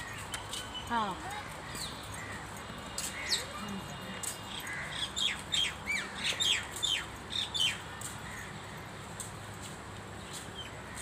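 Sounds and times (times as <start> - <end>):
birds squawking: 0.0 - 3.6, 4.5 - 8.5.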